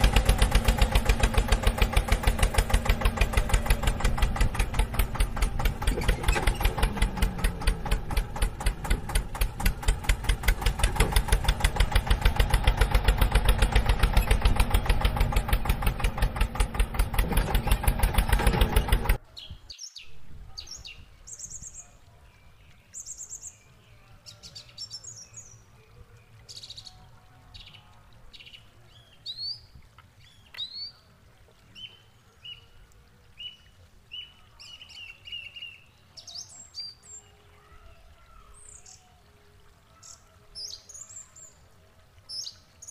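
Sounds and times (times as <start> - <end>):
tractor engine idling: 0.0 - 19.2
birds chirping: 0.0 - 41.7.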